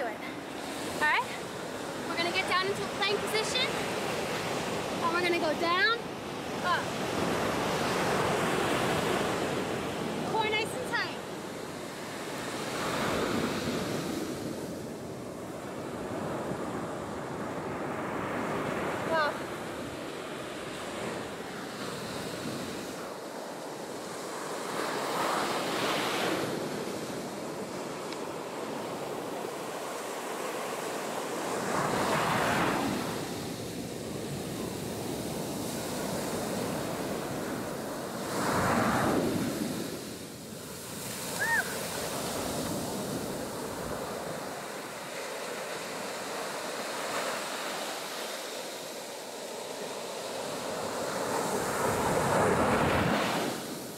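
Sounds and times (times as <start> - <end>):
ocean surf breaking: 0.0 - 53.9.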